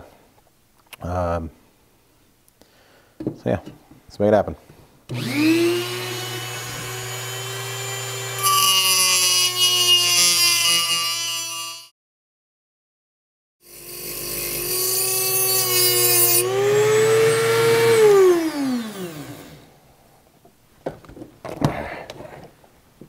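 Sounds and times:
rotary tool grinding metal: 0:05.1 - 0:11.9, 0:13.6 - 0:19.6.

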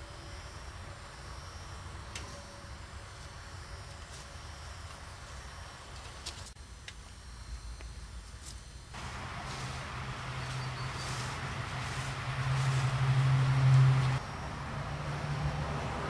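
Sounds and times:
steady low hum: 0:00.0 - 0:16.0
rushing noise: 0:09.0 - 0:16.0.

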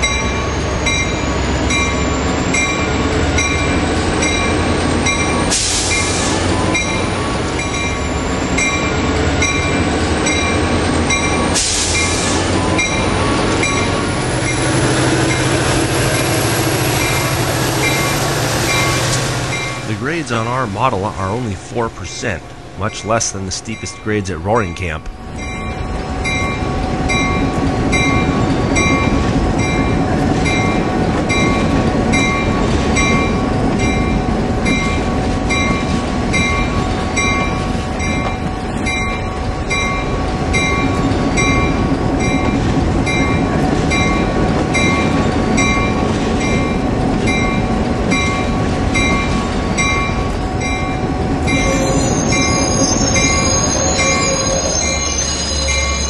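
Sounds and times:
diesel locomotive running: 0:00.0 - 0:56.0
locomotive bell ringing: 0:00.0 - 0:56.0
high wheel squeal: 0:51.3 - 0:56.0.

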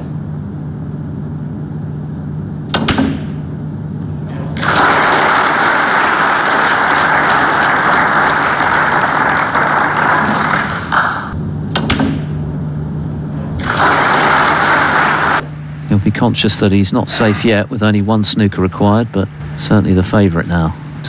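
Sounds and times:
audience applauding: 0:04.6 - 0:11.4, 0:13.6 - 0:15.4.

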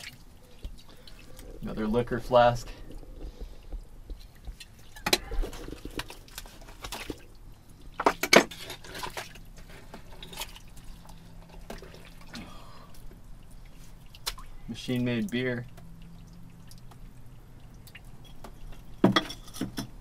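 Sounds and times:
dripping water: 0:00.0 - 0:08.2, 0:08.9 - 0:19.1
digging in wet muck: 0:04.2 - 0:18.6
glass bottles clinking: 0:18.2 - 0:20.0.

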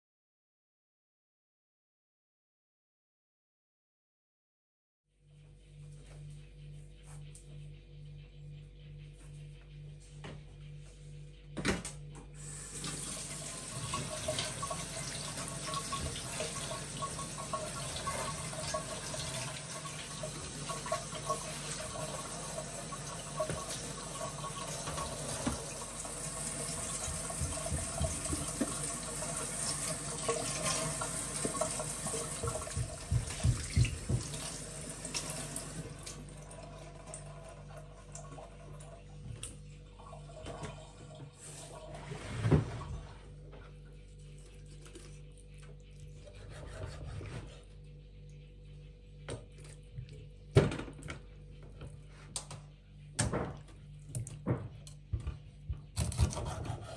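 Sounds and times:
tap water splashing into sink: 0:12.8 - 0:22.2, 0:23.0 - 0:36.2.

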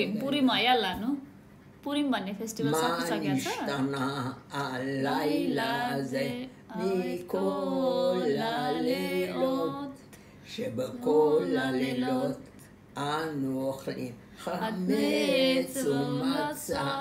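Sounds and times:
elderly woman singing unaccompanied: 0:14.5 - 0:17.0.

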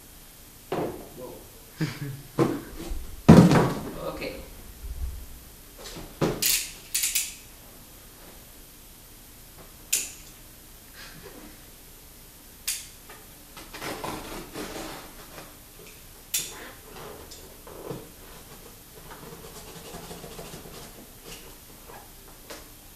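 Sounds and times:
box scraping and rustling: 0:13.7 - 0:15.3.

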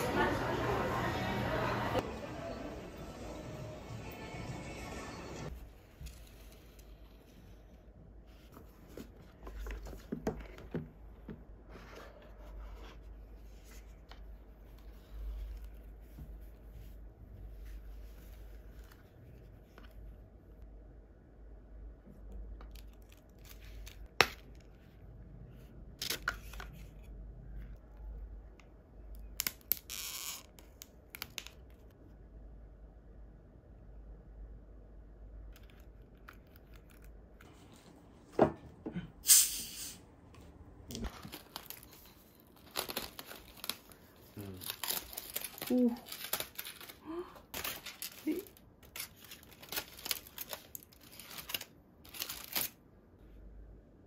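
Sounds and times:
cardboard box and paper rustling: 0:47.6 - 0:52.7.

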